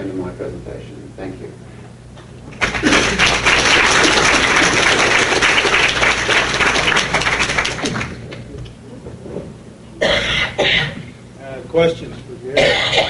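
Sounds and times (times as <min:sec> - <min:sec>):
audience applauding: 0:02.5 - 0:08.4.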